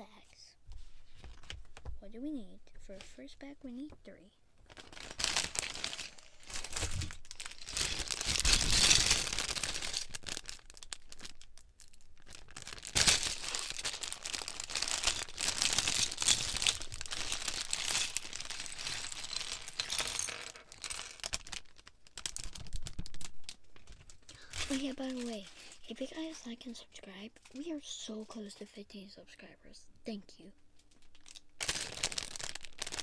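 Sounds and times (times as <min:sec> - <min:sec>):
plastic bags crinkling: 0:04.6 - 0:26.8, 0:30.9 - 0:33.0
small plastic bricks rattling: 0:04.7 - 0:25.6, 0:31.0 - 0:33.0.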